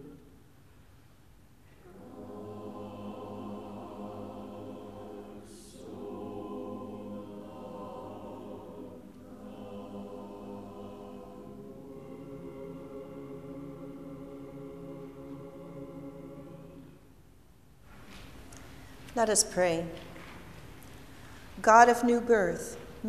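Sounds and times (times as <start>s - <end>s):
church choir singing: 1.7s - 17.3s.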